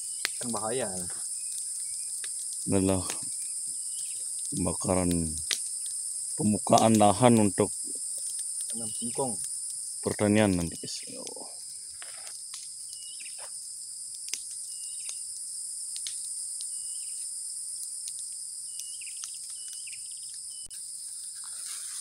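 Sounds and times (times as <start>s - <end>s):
insect chorus trilling: 0.0s - 22.0s
bird chirping: 8.7s - 9.4s, 12.9s - 13.4s.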